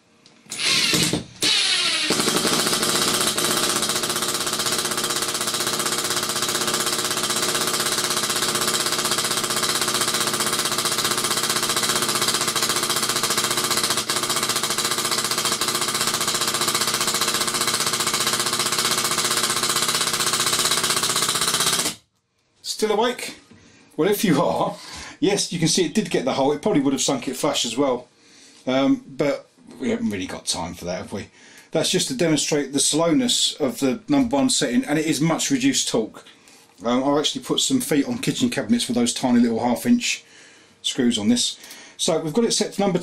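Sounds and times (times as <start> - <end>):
impact driver hammering: 0.5 - 22.0.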